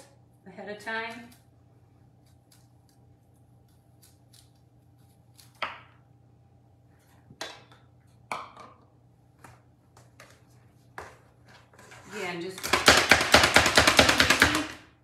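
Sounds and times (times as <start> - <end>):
knife cutting broccoli: 2.2 - 6.0.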